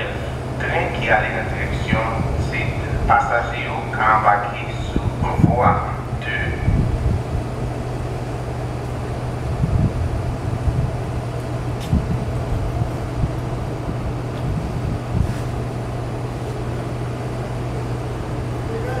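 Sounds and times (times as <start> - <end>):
distant vehicle engines rumbling: 0.0 - 19.0
low thumps: 9.3 - 15.9.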